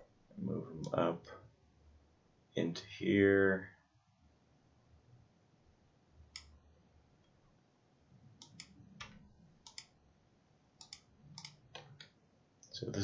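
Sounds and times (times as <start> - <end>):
computer mouse clicking: 6.3 - 6.6, 8.4 - 10.0, 10.8 - 12.2.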